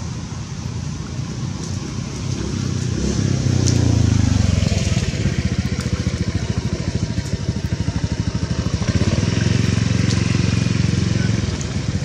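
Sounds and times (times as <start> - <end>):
small engine running: 2.4 - 12.0.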